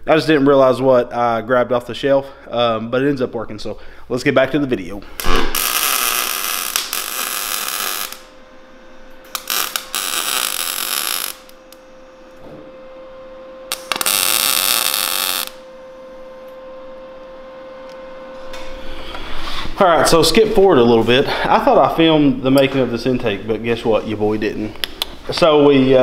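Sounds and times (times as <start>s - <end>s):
steady hum: 0.0s - 26.0s
welding arc hissing buzz: 5.0s - 22.6s
clicks: 24.7s - 25.5s.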